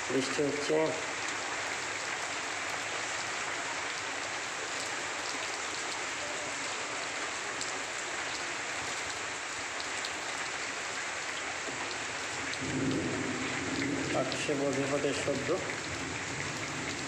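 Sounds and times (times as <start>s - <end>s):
rain falling on leaves: 0.0s - 17.0s.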